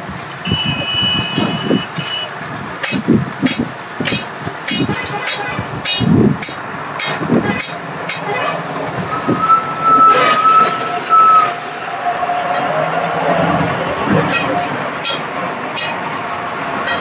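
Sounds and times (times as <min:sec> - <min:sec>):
vehicle high whine: 0:00.0 - 0:17.0.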